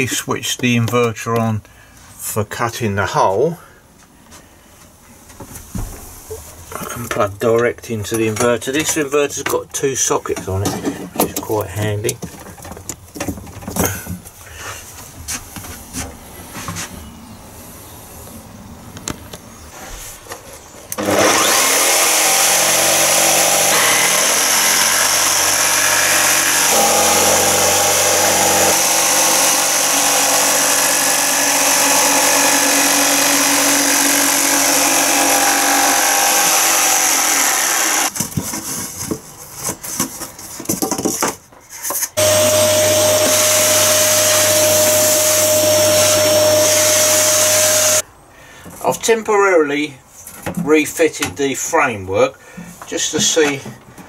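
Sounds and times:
jigsaw cutting plywood: 0:21.0 - 0:38.1, 0:42.2 - 0:48.0
vacuum cleaner running: 0:21.0 - 0:38.1, 0:42.2 - 0:48.0.

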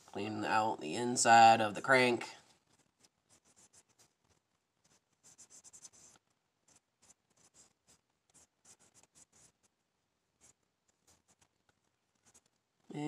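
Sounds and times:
cotton swab scratching metal: 0:10.4 - 0:12.6.

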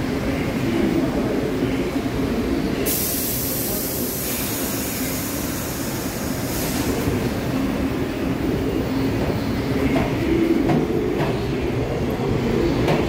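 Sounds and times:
train wheels and motors rumbling: 0:00.0 - 0:13.0
high hiss of air: 0:02.9 - 0:07.5.

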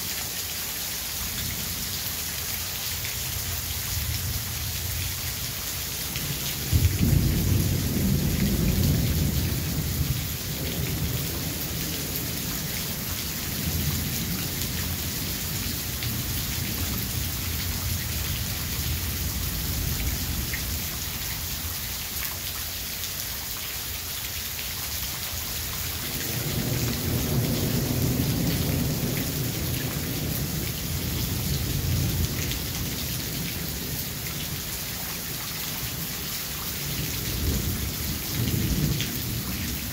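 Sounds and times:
rain hiss: 0:00.0 - 0:39.9
thunder rumbling: 0:06.6 - 0:12.4.

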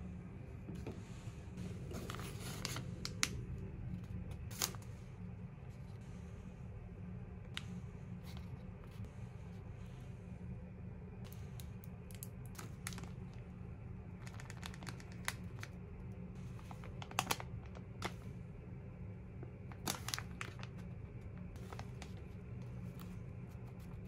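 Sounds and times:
steady low hum: 0:00.0 - 0:24.0
packets crinkling and rustling: 0:14.2 - 0:15.8, 0:16.5 - 0:18.2, 0:19.7 - 0:24.0.

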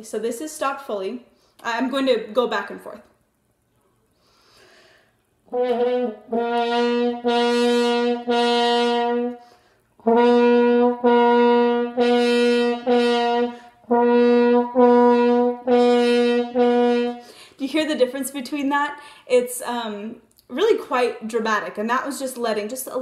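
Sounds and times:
short breath: 0:04.1 - 0:05.2, 0:09.4 - 0:09.9, 0:17.2 - 0:17.6, 0:19.0 - 0:19.3.

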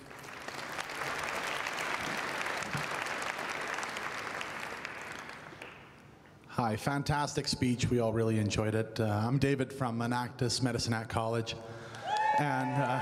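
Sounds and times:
audience applauding: 0:00.0 - 0:06.0, 0:12.0 - 0:13.0.

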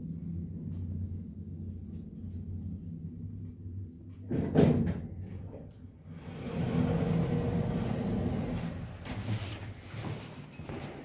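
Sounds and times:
elevator humming: 0:00.0 - 0:11.0
sliding doors whirring open: 0:06.1 - 0:09.6.

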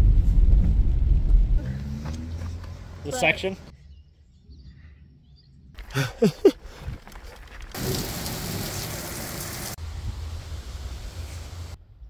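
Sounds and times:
low rumble: 0:00.0 - 0:02.5
heavy rain rushing: 0:07.7 - 0:11.8.

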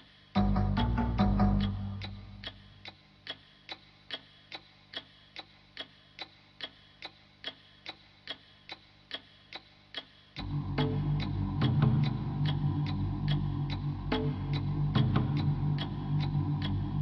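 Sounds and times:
music: 0:00.0 - 0:03.0, 0:10.4 - 0:17.0
sharp steady ticking: 0:00.0 - 0:17.0.

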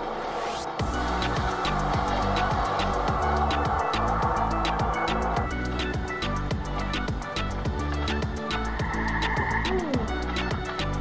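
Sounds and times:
music with drum beat and bass: 0:00.8 - 0:11.0.

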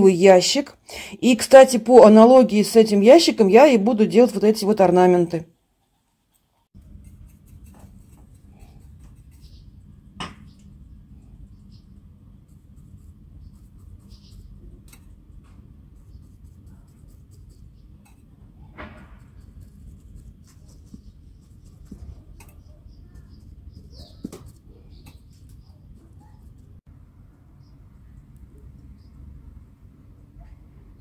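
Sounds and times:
low steady hum: 0:06.8 - 0:31.0.

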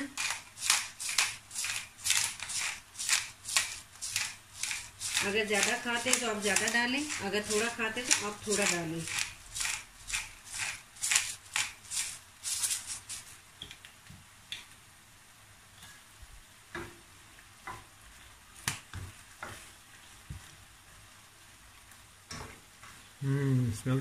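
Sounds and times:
pepper grinder rasping: 0:00.0 - 0:13.3
faint sizzle from pan: 0:00.0 - 0:24.0.

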